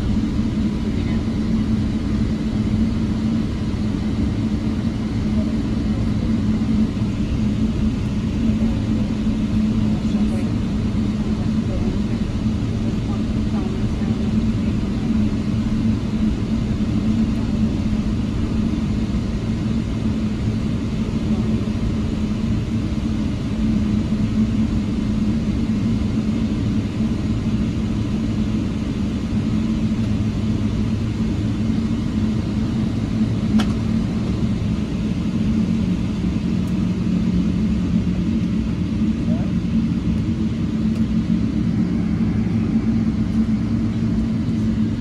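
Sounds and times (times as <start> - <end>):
jet cabin hum and rumble: 0.0 - 45.0.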